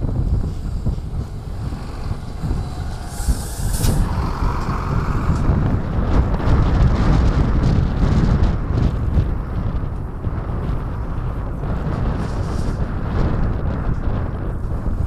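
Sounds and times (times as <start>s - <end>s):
truck passing with deep rumble: 0.0s - 15.0s
wind buffeting microphone: 0.0s - 15.0s
air brakes hissing: 0.6s - 5.6s.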